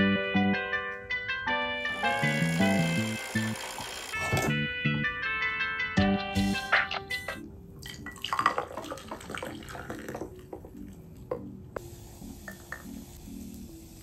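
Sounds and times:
liquid splashing into glass: 7.8 - 10.3
milk pouring into glass: 7.8 - 10.6.

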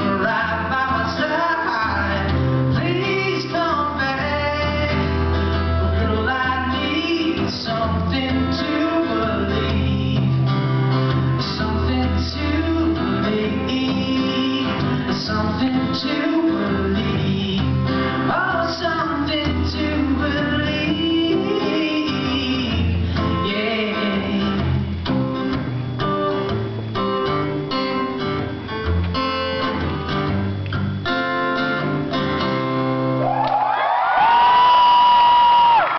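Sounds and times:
man singing: 0.0 - 24.8
acoustic guitar strummed and picked: 0.0 - 33.4.

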